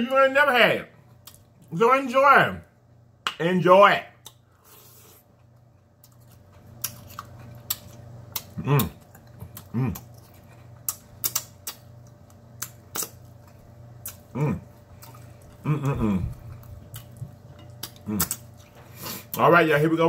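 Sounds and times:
low steady room hum: 0.0s - 20.0s
man chewing food: 1.0s - 1.7s, 4.2s - 19.4s.

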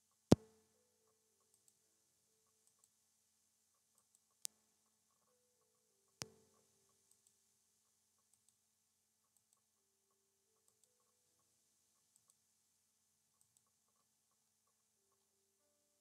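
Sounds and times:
computer mouse clicks: 1.4s - 1.8s, 4.0s - 7.4s, 8.2s - 8.6s, 9.2s - 9.7s, 10.6s - 11.2s, 12.0s - 12.4s, 13.3s - 14.9s.

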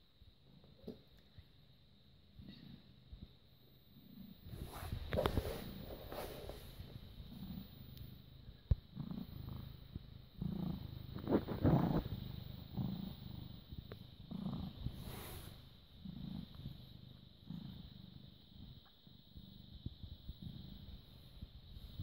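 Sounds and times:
cat purring: 0.2s - 22.0s
rustling: 4.4s - 7.1s.

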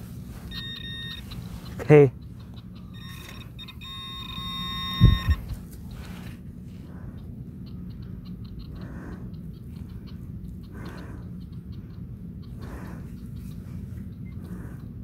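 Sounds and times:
low background rumble: 0.0s - 15.0s
pinpointer beeping: 0.5s - 1.4s, 2.7s - 5.5s
dull knocks: 5.0s - 5.4s.

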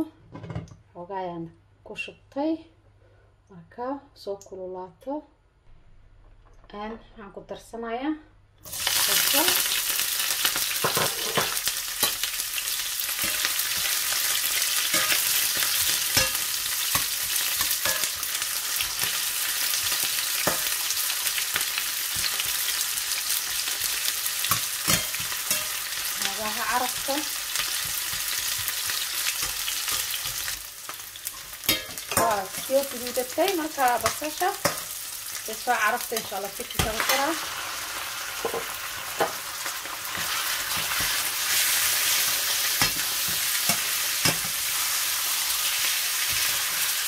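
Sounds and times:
onions sizzling in oil: 8.6s - 47.0s
metal spatula scraping pan: 13.0s - 21.1s, 24.4s - 30.6s, 31.2s - 33.2s.

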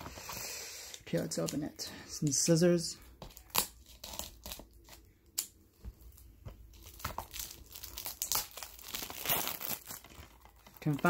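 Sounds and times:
plastic wrap crinkling and tearing: 3.2s - 11.0s
scissors cutting plastic wrap: 3.3s - 5.5s, 6.7s - 11.0s.

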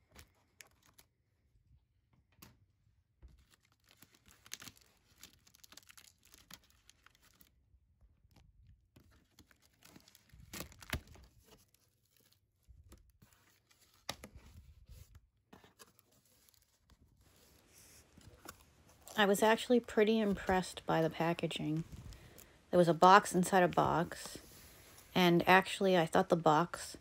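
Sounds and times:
cardboard rustling: 9.0s - 20.8s.

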